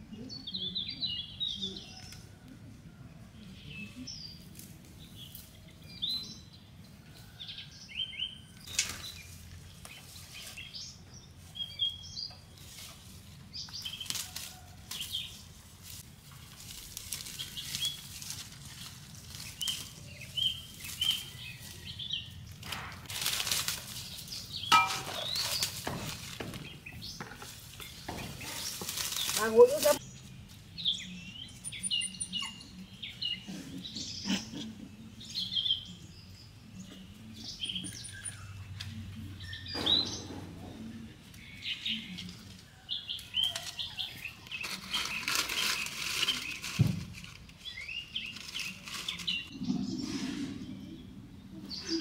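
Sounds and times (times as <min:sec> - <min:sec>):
small birds chirping: 0:03.4 - 0:16.4, 0:17.0 - 0:22.5, 0:23.9 - 0:52.0
plants rustling as pulled up: 0:12.5 - 0:26.8, 0:27.4 - 0:30.0, 0:43.2 - 0:49.5.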